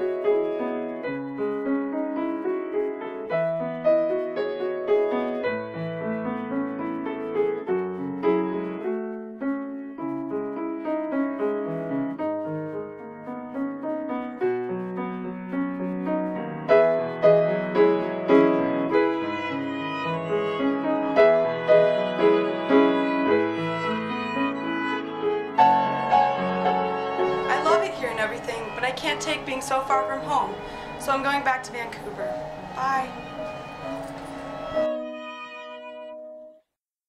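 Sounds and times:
piano: 0.0s - 36.7s
violin line: 16.0s - 36.6s.

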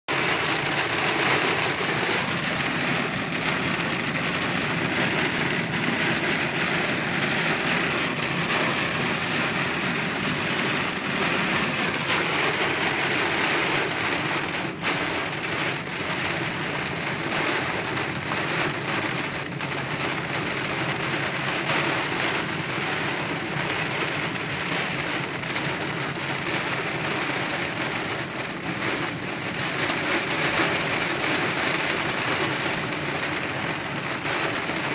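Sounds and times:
car running on wet road: 0.1s - 34.9s
heavy rain on a car: 0.1s - 34.9s.

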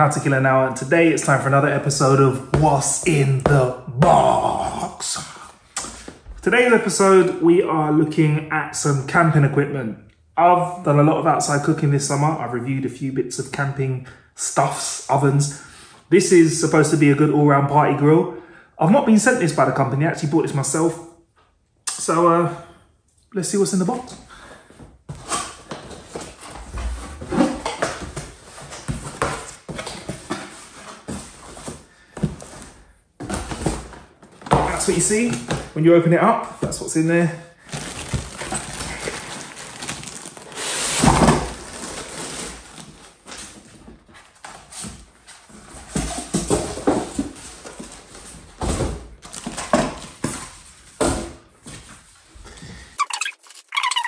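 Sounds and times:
cardboard and polystyrene rustling: 37.6s - 52.2s.

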